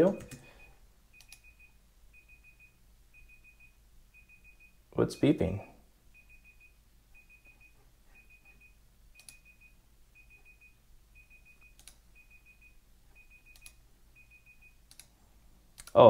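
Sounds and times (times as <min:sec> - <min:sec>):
faint high timer beeps: 0:00.0 - 0:14.8
faint clicks: 0:14.9 - 0:15.1.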